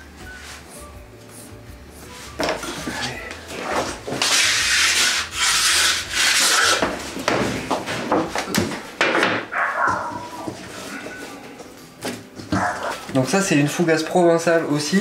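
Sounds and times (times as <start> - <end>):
dough scraping on wooden surface: 2.3 - 8.1.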